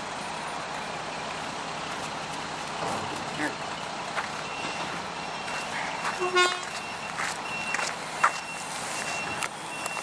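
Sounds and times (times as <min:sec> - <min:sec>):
truck reversing alarm beeping: 0:00.0 - 0:02.8, 0:03.5 - 0:10.0
outdoor background noise: 0:00.0 - 0:10.0
horn toot: 0:06.2 - 0:06.7.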